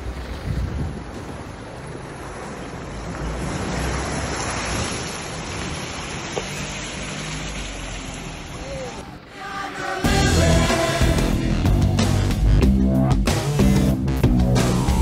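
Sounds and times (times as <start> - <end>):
water rushing and splashing: 0.0 - 11.6.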